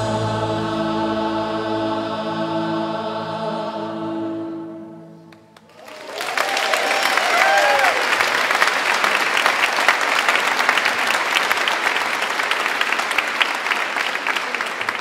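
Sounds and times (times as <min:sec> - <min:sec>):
crowd clapping: 0:05.3 - 0:15.0.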